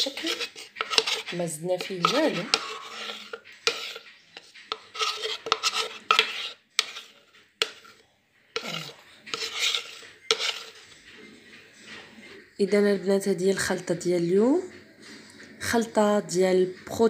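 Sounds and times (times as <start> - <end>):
metal spoon scraping plastic jug: 0.0 - 11.0.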